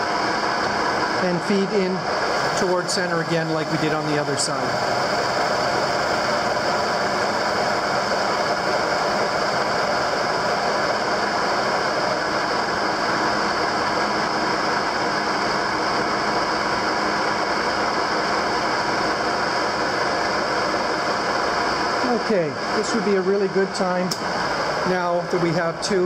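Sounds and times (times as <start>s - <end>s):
metal lathe running: 0.0s - 26.0s.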